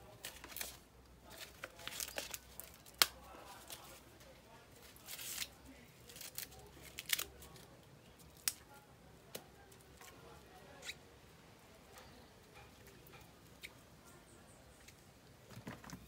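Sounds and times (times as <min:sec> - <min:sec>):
corn husks rustling and tearing: 0:00.0 - 0:10.4
husk snaps and crackles: 0:00.0 - 0:11.0.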